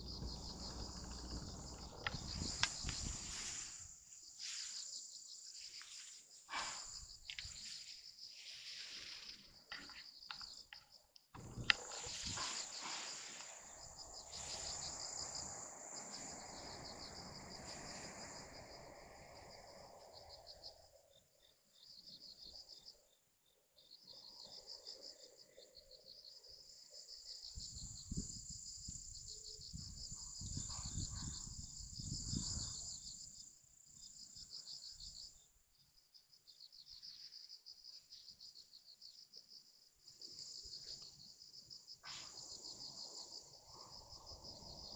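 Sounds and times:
low rumbles: 0.0 - 3.1
insects trilling: 0.0 - 44.9.

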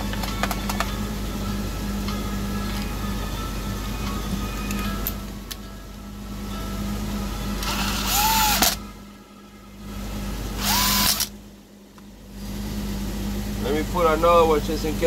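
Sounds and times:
cordless power driver whirring: 7.6 - 8.8, 10.6 - 11.4.

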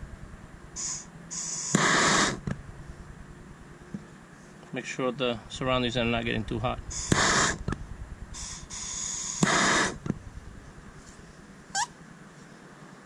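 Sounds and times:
gas torch flame hissing: 0.8 - 2.5, 6.8 - 10.2
short rising chirp: 8.4 - 10.0, 11.7 - 12.0.

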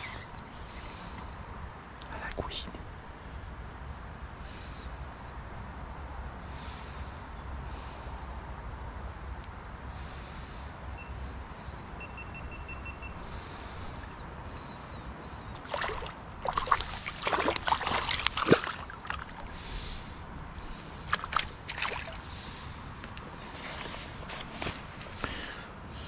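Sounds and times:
fish splashing and thrashing: 15.5 - 19.6, 21.0 - 22.3
river flowing: 15.6 - 23.5.

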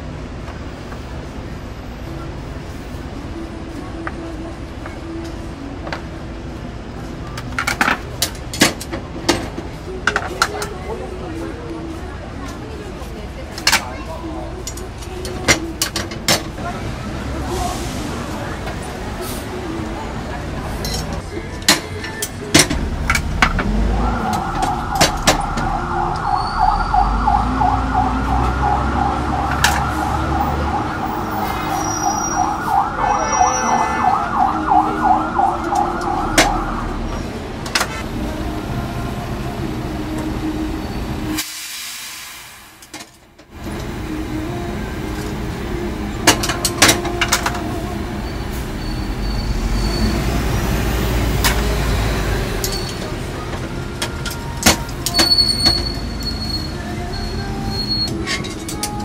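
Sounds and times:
street noise: 0.0 - 59.0
siren warbling fast: 23.8 - 37.2.

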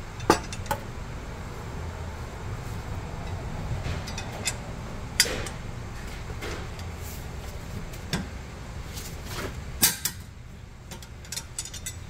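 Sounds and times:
low background hum: 0.0 - 12.0
metallic clicks and clinks: 10.9 - 12.0.

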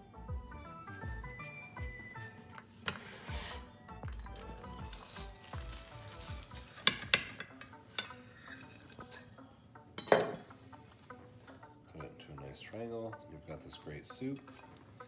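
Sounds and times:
knife clinking and scraping on plate: 6.6 - 9.3, 10.0 - 10.5.

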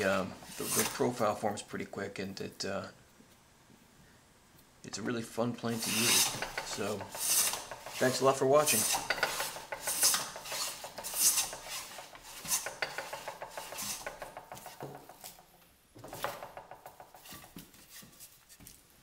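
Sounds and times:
molding plane scraping wood: 0.0 - 1.4, 5.6 - 18.8.

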